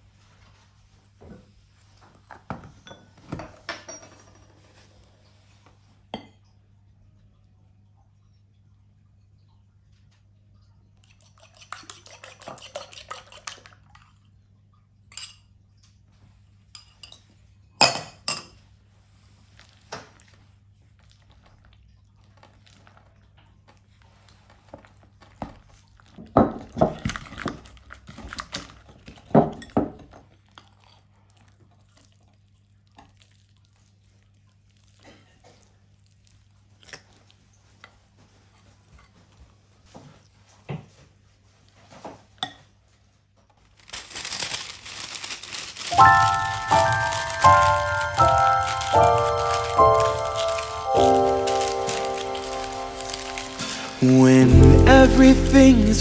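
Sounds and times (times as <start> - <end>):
utensils and dishes clinking: 2.6 - 4.8, 45.8 - 56.0.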